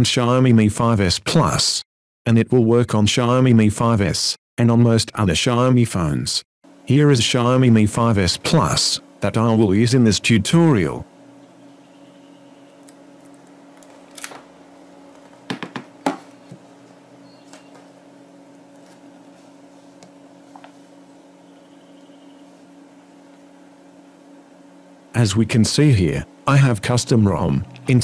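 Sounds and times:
low electrical hum: 0.0 - 28.0
phone tapping on wooden table: 15.4 - 16.6.

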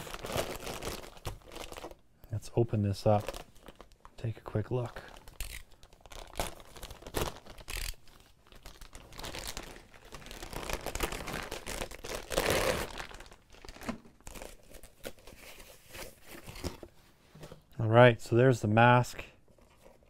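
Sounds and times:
plastic bag crinkling and rustling: 0.0 - 2.0, 2.9 - 17.0.

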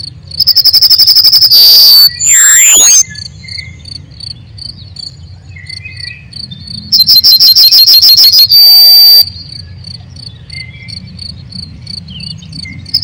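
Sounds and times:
crickets chirping: 0.0 - 13.0
shrill rapid pulses and trill: 0.4 - 3.0, 6.9 - 9.3
gliding whistle-like sound: 0.6 - 3.1, 7.0 - 9.3.

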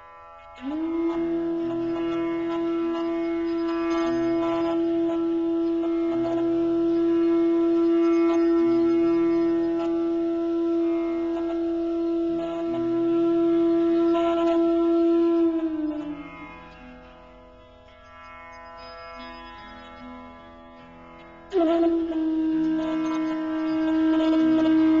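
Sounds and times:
lower accompanying tones: 0.0 - 25.0
long steady horn note: 0.6 - 16.7, 21.5 - 25.0.

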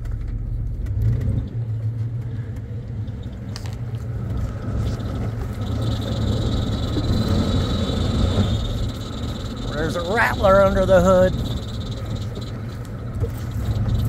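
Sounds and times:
off-road vehicle engine under load: 0.0 - 14.0
high whine: 3.4 - 14.0.

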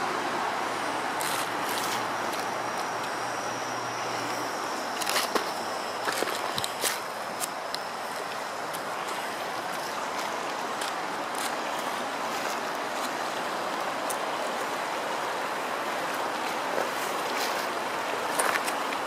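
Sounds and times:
river rushing over stones: 0.0 - 19.0.

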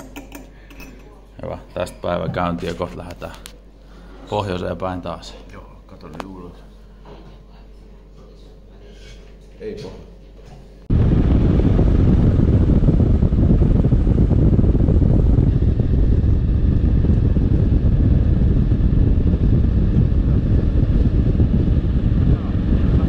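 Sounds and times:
motorcycle ride rumble: 10.9 - 23.0
wind buffeting microphone: 10.9 - 23.0.

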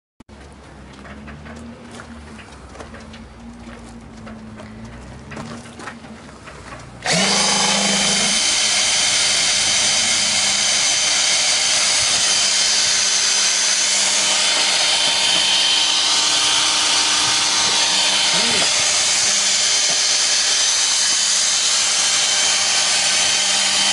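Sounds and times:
pump drawing water: 5.4 - 23.9
cordless drill whining: 7.0 - 23.9.

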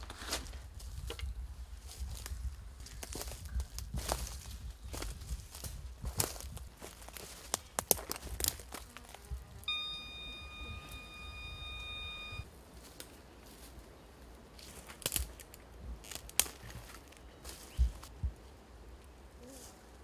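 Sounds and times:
footsteps on dry leaves and twigs: 0.0 - 9.2, 12.5 - 18.2
twigs snapping: 7.0 - 8.9, 14.8 - 17.2
high whistle-like tone: 9.7 - 12.5.

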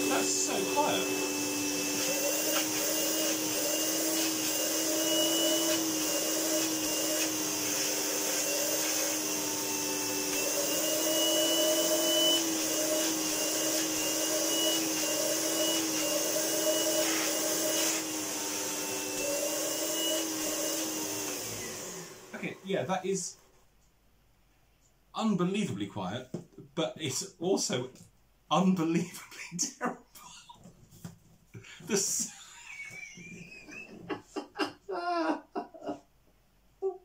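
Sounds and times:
vacuum cleaner motor humming: 0.0 - 22.6.

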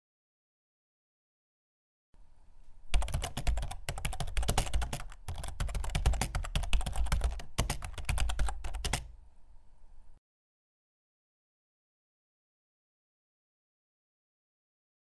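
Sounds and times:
fast typing on keyboard: 2.9 - 9.1.

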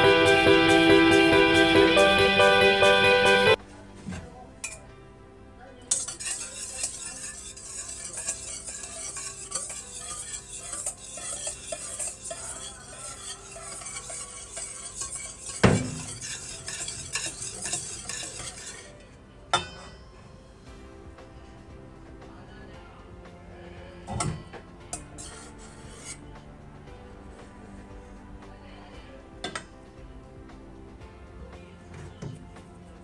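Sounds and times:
whisk scraping metal bowl: 0.0 - 3.6, 5.9 - 19.1, 24.9 - 26.3.

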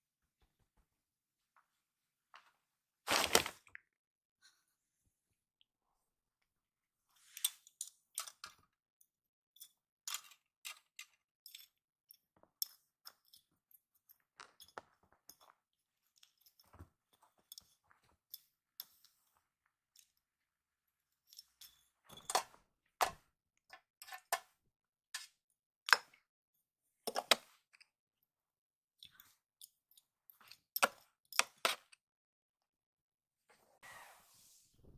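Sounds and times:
plastic toys clicking and tapping: 7.4 - 8.7, 9.6 - 15.6, 21.3 - 24.6.

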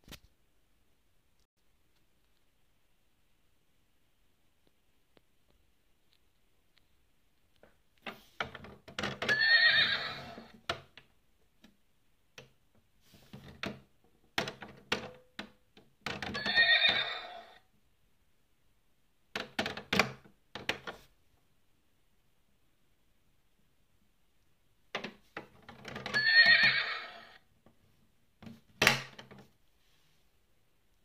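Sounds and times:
horse whinnying: 9.2 - 10.6, 16.3 - 17.6, 26.1 - 27.4.

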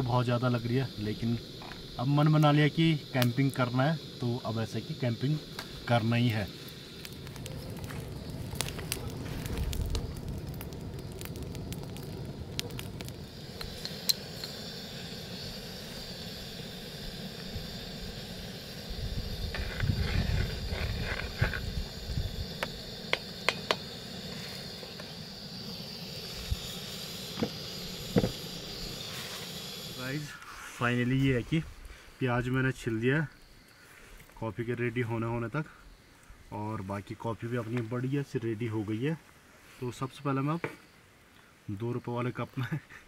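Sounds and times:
gas stove burner hissing: 0.0 - 34.1.

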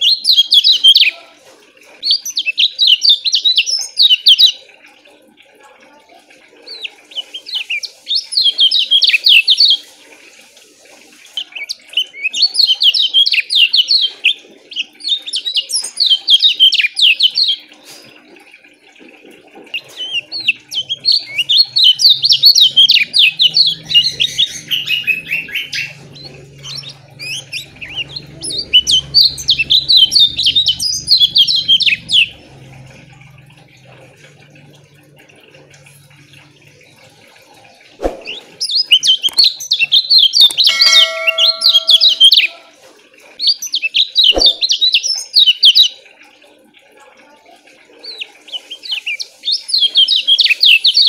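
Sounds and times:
bird singing fast chirps: 19.8 - 32.4, 38.0 - 42.7, 43.6 - 45.9.

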